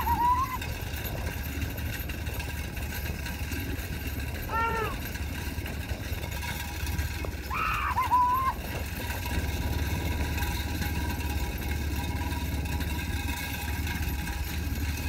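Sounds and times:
vehicle engine running: 0.0 - 15.0
person shouting: 4.5 - 5.0, 7.5 - 8.6.

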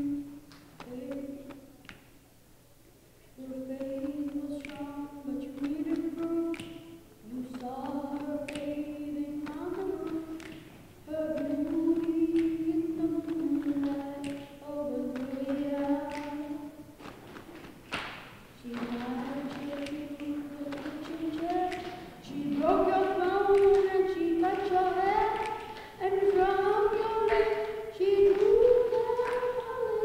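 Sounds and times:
children singing a cappella: 3.4 - 17.0, 18.6 - 30.0.

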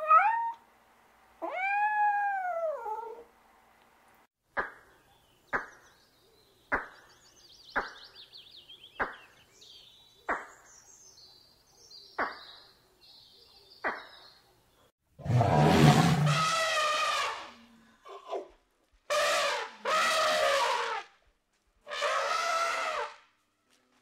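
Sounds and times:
small birds chirping: 4.6 - 14.9
loud drawn-out animal call: 15.2 - 18.4, 19.1 - 21.1, 21.9 - 23.2.

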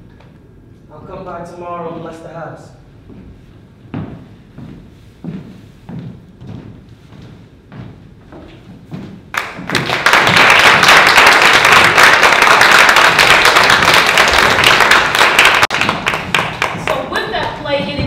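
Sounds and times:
audience applauding: 9.3 - 17.1.

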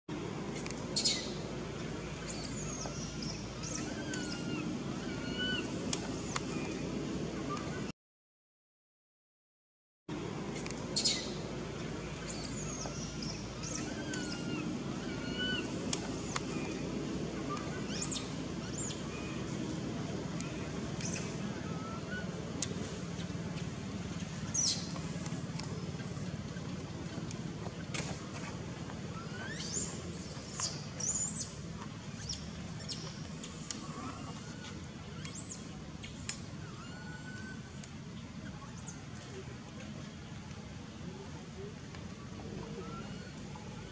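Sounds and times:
animals chirping and whistling: 1.0 - 1.4, 2.3 - 6.7, 11.0 - 11.4, 12.3 - 16.8, 17.4 - 19.5, 20.4 - 22.4, 29.1 - 37.8, 42.6 - 43.9
low background rumble: 10.1 - 43.9
infant monkey squeaking: 29.2 - 31.4.

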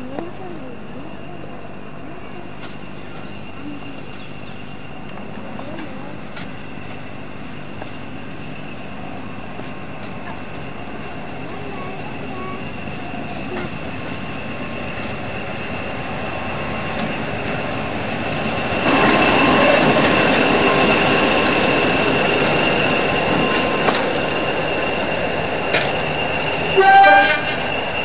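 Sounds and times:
diesel locomotive engines running: 0.0 - 28.0
locomotive horn blast: 26.8 - 27.7.

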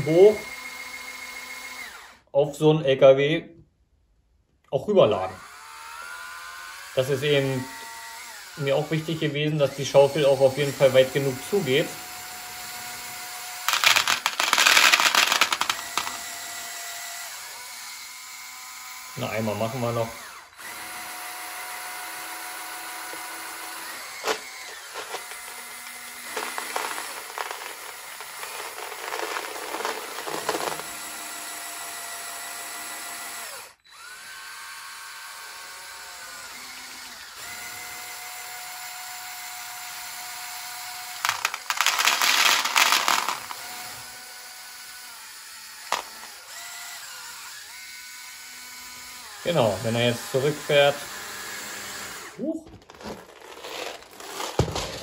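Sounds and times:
small electric motors whining: 0.0 - 2.3, 5.4 - 55.0
marbles pouring out clattering: 13.7 - 16.2, 24.0 - 31.0, 41.2 - 43.6, 52.8 - 55.0
marbles rattling in bucket: 13.7 - 16.3, 23.9 - 31.1, 41.2 - 43.7, 52.7 - 55.0.

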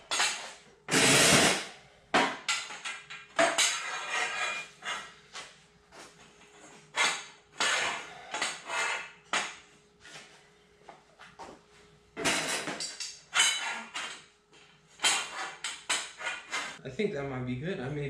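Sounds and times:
metal pipes clanking: 12.2 - 14.3.

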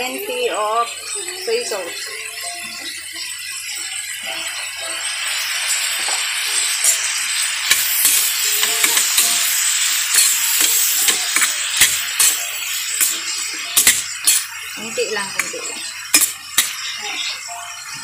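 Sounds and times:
sauce sizzling in a hot pan: 0.0 - 18.0
spatula scraping a steel pan: 10.1 - 14.5.

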